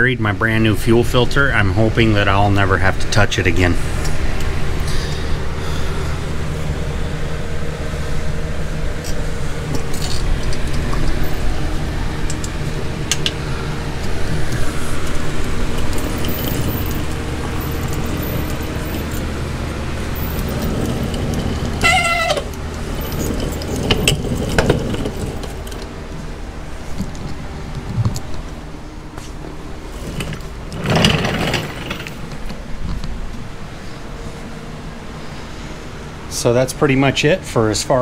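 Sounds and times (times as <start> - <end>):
low mechanical hum: 0.0 - 38.0
rising squeak: 20.0 - 25.8
high-pitched wavering cry: 21.8 - 22.6.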